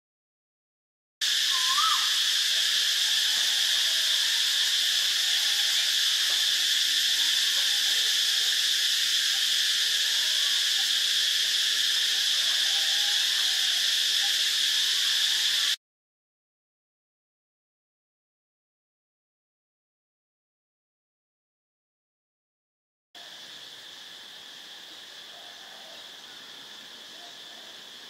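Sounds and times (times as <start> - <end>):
high-pitched insect chorus: 1.2 - 15.8, 23.2 - 28.0
faint whistled bird calls: 1.3 - 2.6.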